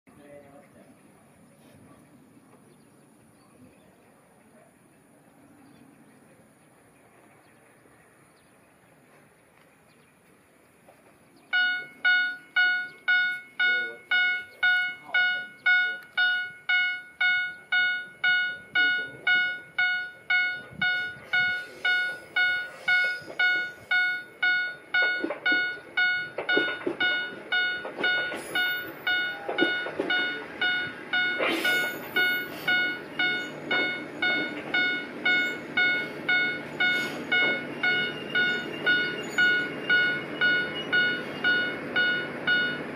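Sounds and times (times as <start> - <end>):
diesel railcar rumble: 0.1 - 42.9
level crossing warning bell: 11.5 - 42.9.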